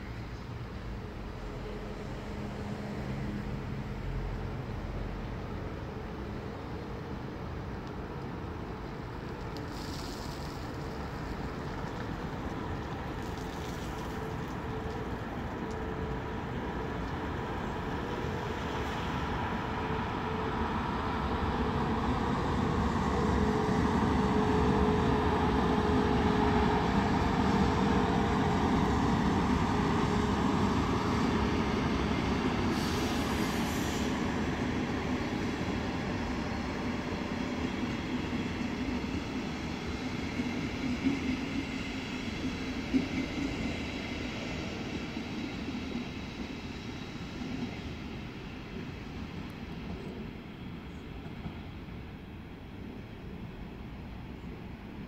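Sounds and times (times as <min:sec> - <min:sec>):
train wheel and rail rumble: 0:00.0 - 0:55.0
short hiss: 0:09.6 - 0:11.2, 0:32.7 - 0:34.2.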